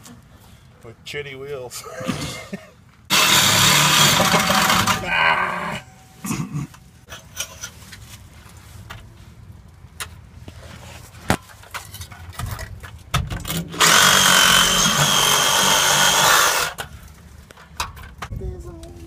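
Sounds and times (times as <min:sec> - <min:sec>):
cordless power tool whining: 0:03.1 - 0:05.1, 0:13.8 - 0:16.8
clicks and knocks of pipe handling: 0:09.9 - 0:13.7, 0:16.8 - 0:18.4.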